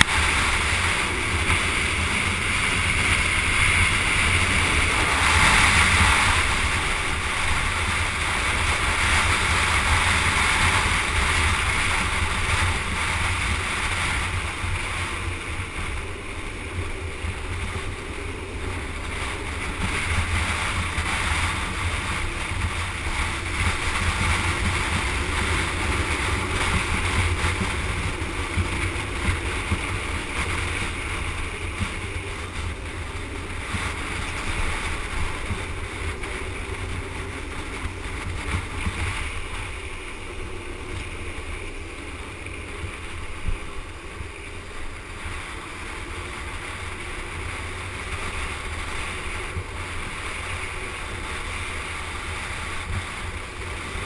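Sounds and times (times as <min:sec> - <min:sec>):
wheels rolling on asphalt: 0:00.0 - 0:54.0
wind buffeting microphone: 0:00.0 - 0:54.0.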